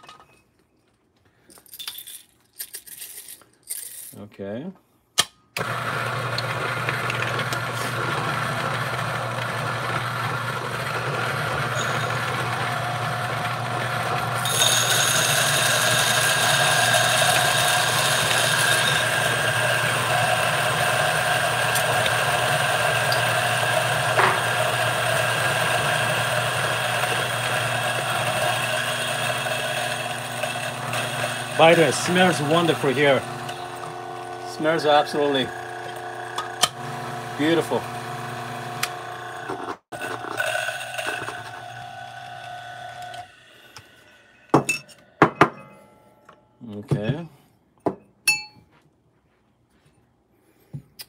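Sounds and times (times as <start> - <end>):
coffee grinder motor humming: 5.6 - 44.2.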